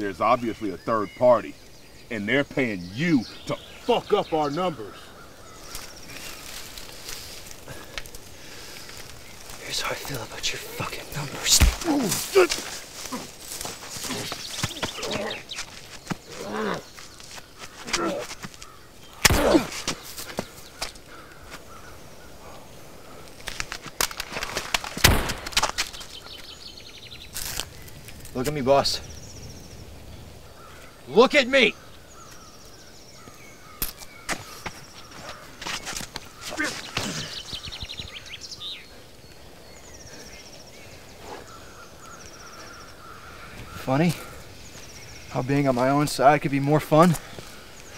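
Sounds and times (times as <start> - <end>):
faint birdsong: 0.0 - 47.9
outdoor ambience: 0.0 - 47.9
footsteps through dry leaves: 5.6 - 7.6, 11.7 - 17.9
men grunting: 10.5 - 15.5, 16.3 - 17.0, 17.8 - 18.5, 19.2 - 20.0, 36.4 - 37.5
men grappling thuds: 11.4 - 16.8.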